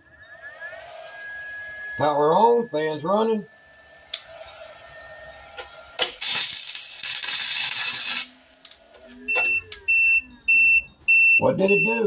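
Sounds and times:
steady beeping: 0.0s - 7.4s, 8.0s - 12.0s
welding arc crackling: 2.7s - 9.4s.

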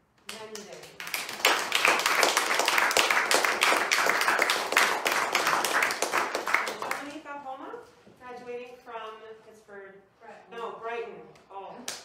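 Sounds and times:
audience applause: 1.0s - 7.0s.

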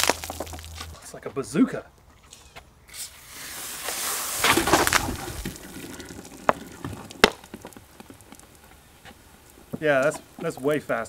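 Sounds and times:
fizzy cola gushing and splashing: 3.1s - 10.8s.

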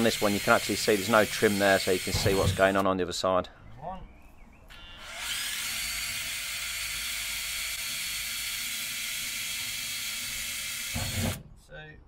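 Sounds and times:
cordless drill whirring: 0.0s - 2.8s, 4.7s - 11.4s.

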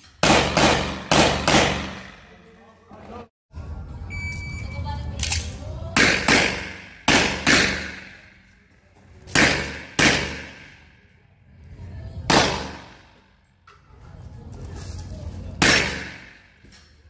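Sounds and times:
pistol shots echoing: 0.2s - 2.2s, 6.0s - 8.3s, 9.4s - 10.9s, 12.3s - 13.0s, 15.6s - 16.4s.

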